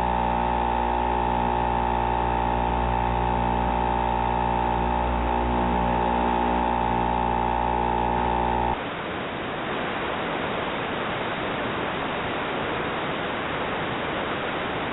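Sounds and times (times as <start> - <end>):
electrical hum: 0.0 - 8.8
static hiss: 0.0 - 14.9.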